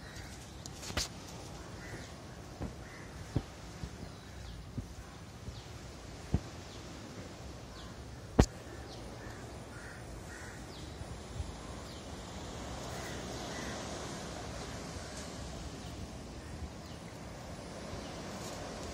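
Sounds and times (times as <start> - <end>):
harsh caw-like bird calls: 0.0 - 0.4, 1.5 - 4.5, 7.7 - 11.0, 12.6 - 15.5
steady background hiss: 0.0 - 18.9.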